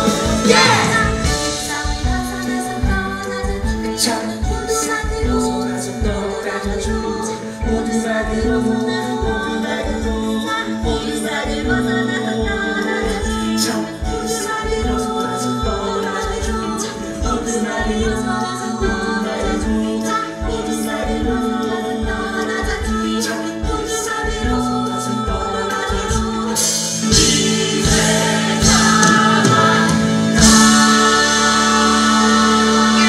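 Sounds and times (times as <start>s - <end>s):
cast singing together: 0.0s - 33.0s
live band with drum beat: 0.0s - 33.0s
cymbals: 26.6s - 33.0s.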